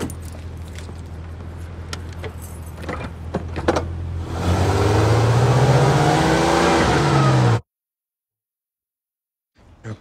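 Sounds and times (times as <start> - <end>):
car engine accelerating: 4.1 - 7.6.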